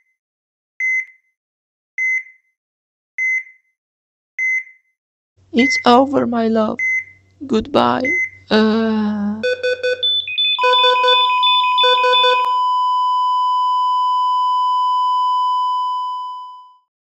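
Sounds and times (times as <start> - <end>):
heart monitor rapid beeps: 2.0 - 2.3, 3.2 - 3.5, 4.4 - 4.7, 5.6 - 6.0, 6.8 - 7.2, 8.0 - 8.4, 9.4 - 13.4
heart monitor flatline tone: 5.6 - 6.0, 8.0 - 8.6, 9.4 - 16.8.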